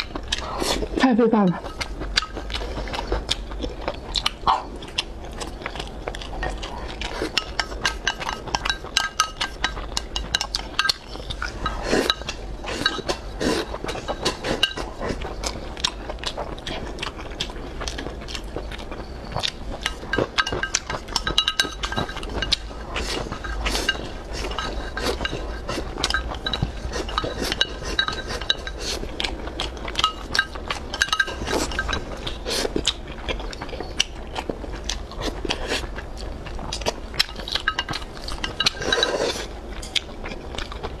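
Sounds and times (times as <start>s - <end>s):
chewing: 0.0s - 41.0s
chopsticks clinking on ceramic bowl: 6.4s - 15.4s, 19.7s - 32.9s, 37.2s - 40.0s.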